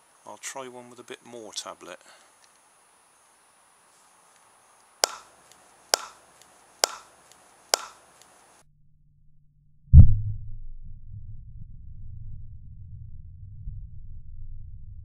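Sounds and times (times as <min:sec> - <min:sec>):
slowed deep thump and rumble: 0:10.0 - 0:15.0.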